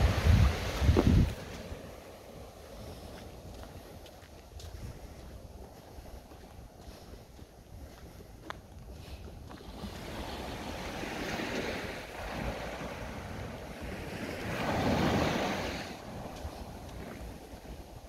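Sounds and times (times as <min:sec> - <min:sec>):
small waves washing on shore: 0:00.0 - 0:18.0.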